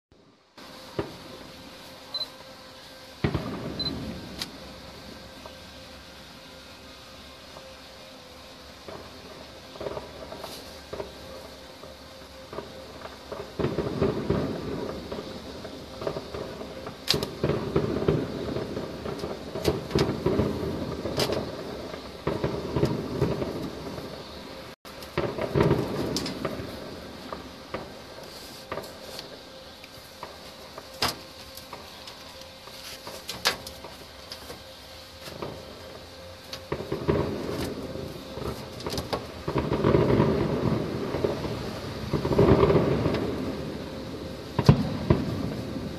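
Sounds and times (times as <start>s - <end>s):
firework cracks: 0.6s - 2.2s, 2.8s - 6.6s, 7.2s - 45.9s
distant firework booms: 3.2s - 5.6s, 8.8s - 29.4s, 35.3s - 45.9s.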